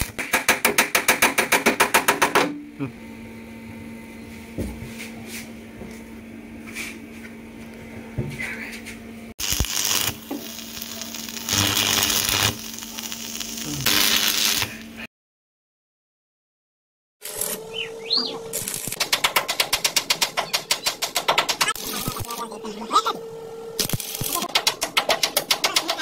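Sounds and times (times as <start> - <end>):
welder crackling hiss: 9.4 - 15.0, 23.8 - 24.5
steady hum: 21.8 - 24.5.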